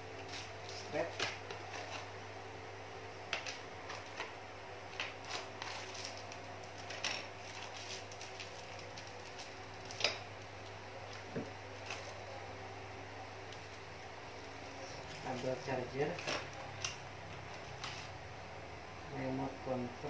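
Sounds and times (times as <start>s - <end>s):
low steady hum: 0.0s - 20.0s
plastic bags crinkling: 5.1s - 10.2s.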